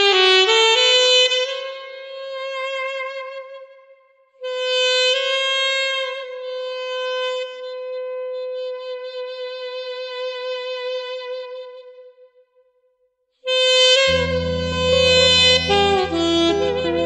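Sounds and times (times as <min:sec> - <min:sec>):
wind instrument holding long note: 0:14.0 - 0:17.0.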